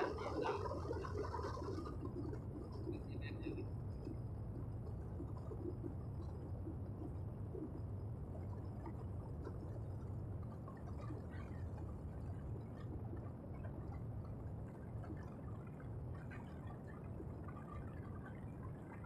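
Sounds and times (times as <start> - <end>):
faint crackles: 0.0 - 19.0.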